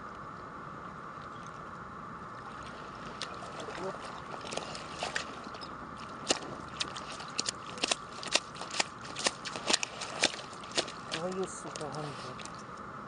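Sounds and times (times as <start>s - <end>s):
fishing net clicks and taps: 6.3s - 12.6s.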